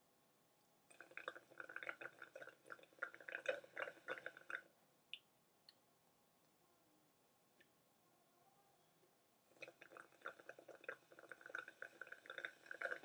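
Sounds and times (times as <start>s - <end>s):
slurping through a straw: 0.9s - 4.7s, 9.5s - 13.0s.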